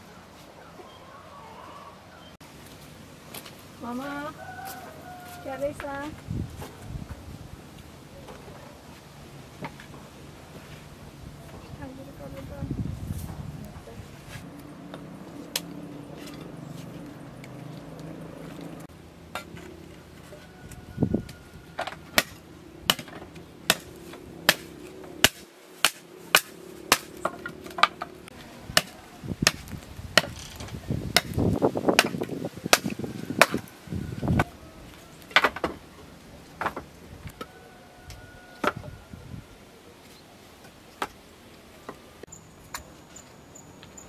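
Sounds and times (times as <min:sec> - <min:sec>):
hatchet chopping branches: 0:14.9 - 0:16.5, 0:21.8 - 0:33.7.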